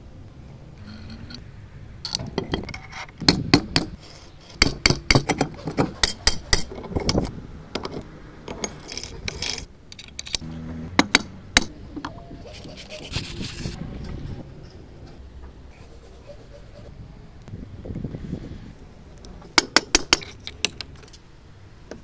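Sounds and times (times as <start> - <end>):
metal scraping: 0.7 - 17.0
metal gear parts clicking and clinking: 6.1 - 10.4.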